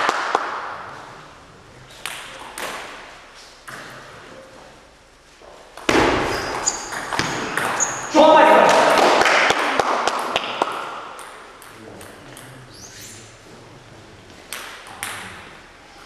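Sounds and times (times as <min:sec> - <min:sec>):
brief high squeaks: 0:06.3 - 0:07.1, 0:07.7 - 0:08.1.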